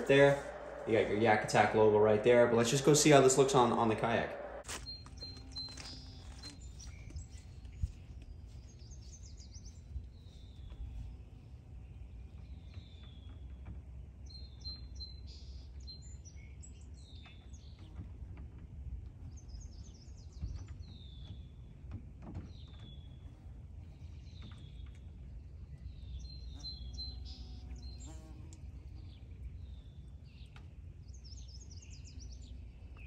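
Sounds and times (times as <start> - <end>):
low outdoor rumble: 0.0 - 10.6
songbirds singing: 0.0 - 33.0.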